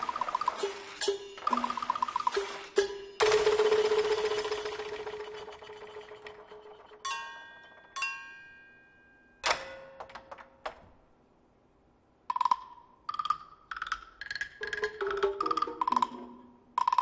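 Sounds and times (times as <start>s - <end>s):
metallic percussion strikes ringing: 0.0s - 5.0s, 6.7s - 10.0s.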